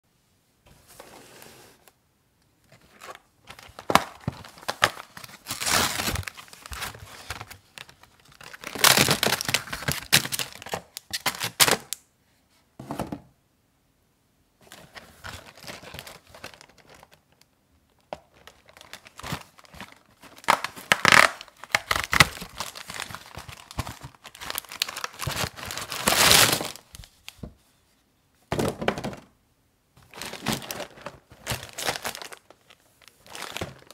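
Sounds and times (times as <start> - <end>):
plastic and foil packets rustling: 2.8 - 12.0, 14.7 - 27.4, 30.0 - 33.9
cardboard boxes tearing: 5.5 - 6.9, 20.4 - 26.8.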